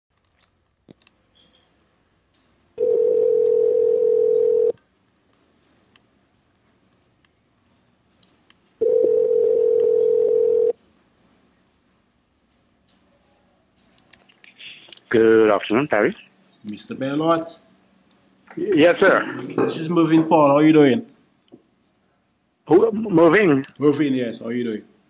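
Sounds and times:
telephone ringback tone: 0:02.8 - 0:04.8, 0:08.8 - 0:10.8.

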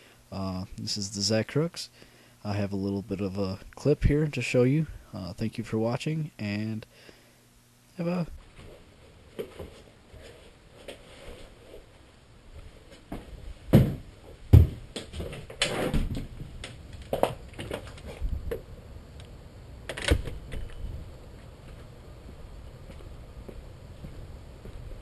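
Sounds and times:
knocks thumps and clatter: 0:13.7 - 0:18.6.

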